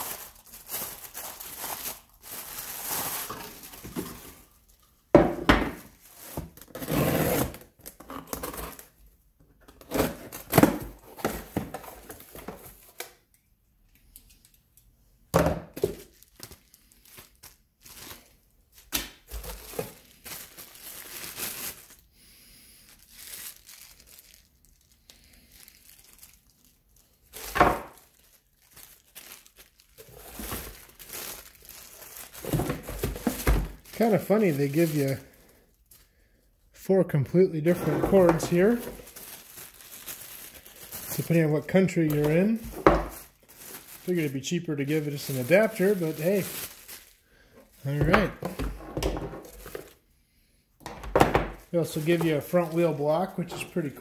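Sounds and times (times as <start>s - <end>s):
plastic bags crinkling: 0.0s - 6.7s, 15.7s - 22.1s, 22.7s - 36.2s, 37.6s - 50.0s, 51.3s - 54.0s
items knocking on bench: 5.1s - 5.9s.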